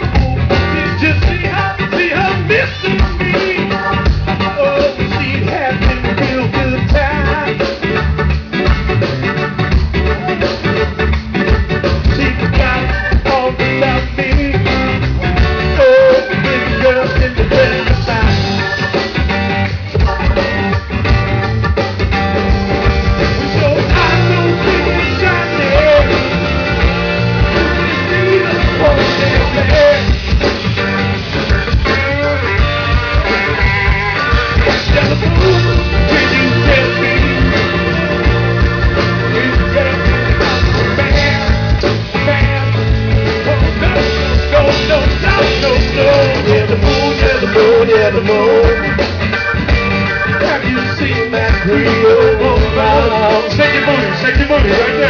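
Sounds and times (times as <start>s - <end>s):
drum kit steady beat: 0.0s - 55.0s
electric guitar: 0.0s - 55.0s
live rock band playing: 0.0s - 55.0s
person singing: 12.0s - 18.8s, 23.3s - 30.2s, 31.9s - 49.0s, 50.4s - 55.0s.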